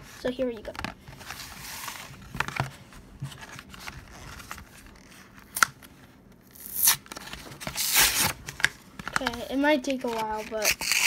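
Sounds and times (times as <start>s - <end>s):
packaging tearing: 6.5s - 9.4s, 10.0s - 11.0s
packaging clicks and rustling: 7.0s - 11.0s.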